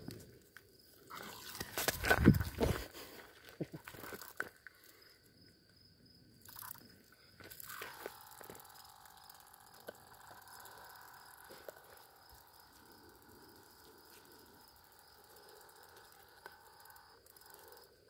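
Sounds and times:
cicada buzzing: 6.4s - 18.0s.

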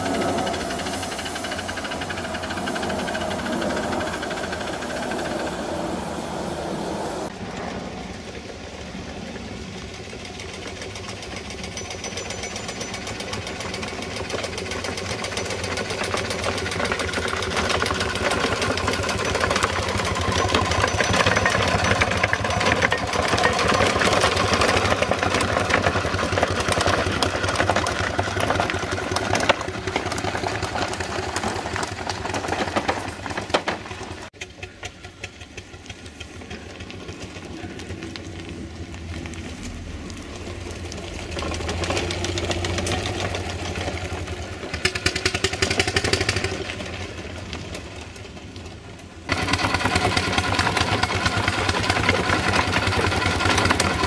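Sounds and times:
steam engine exhaust beat: 0.0s - 32.6s, 49.3s - 54.0s.

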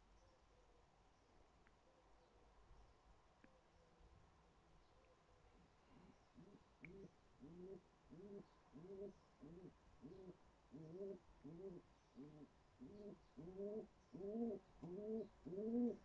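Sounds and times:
pigeon cooing: 6.4s - 16.0s.

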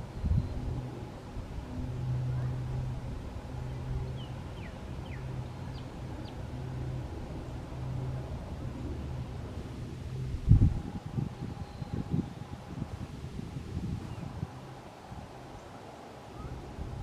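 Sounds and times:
distant engine hum: 0.0s - 17.0s.

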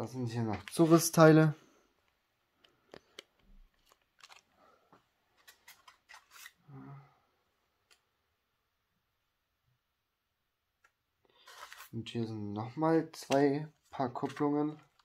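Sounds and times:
plastic bag crinkling: 3.7s - 4.5s.

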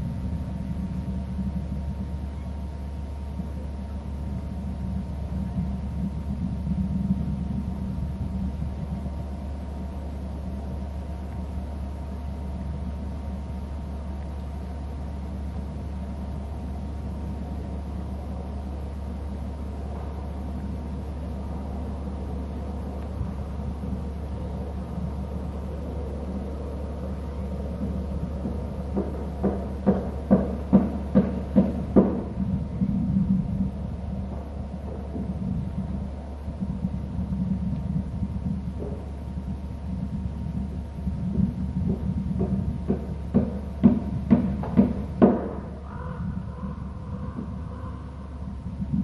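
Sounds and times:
faint hum: 0.0s - 49.0s
low rumble: 0.0s - 49.0s
sharp knocks: 27.8s - 32.4s, 41.9s - 45.8s.

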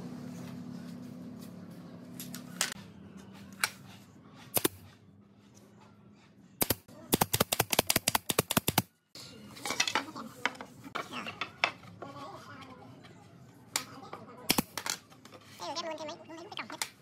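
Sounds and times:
nail gun firing into wood: 6.6s - 8.9s.

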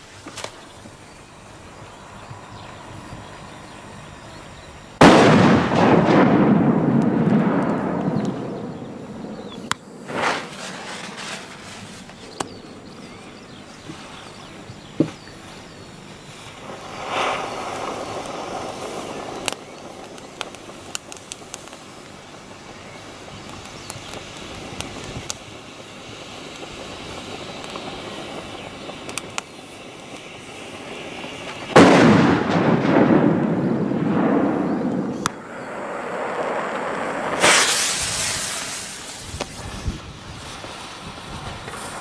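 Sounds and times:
small firecracker pops: 0.2s - 0.6s, 5.0s - 12.6s, 16.6s - 22.2s, 22.8s - 25.5s, 26.4s - 30.4s, 31.4s - 42.0s
loud firecracker bang with echo: 5.0s - 12.6s, 31.6s - 40.0s
short sharp crack: 9.6s - 12.6s, 37.3s - 39.7s.

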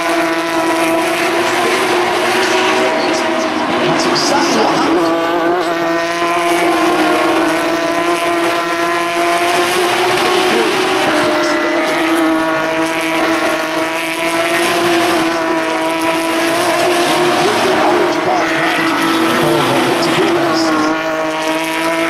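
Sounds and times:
race car engines passing: 0.0s - 22.0s.

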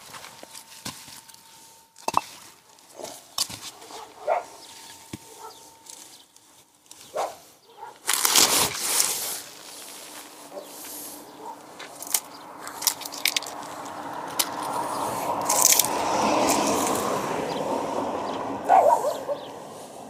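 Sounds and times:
bricks knocking on concrete: 2.0s - 2.4s.

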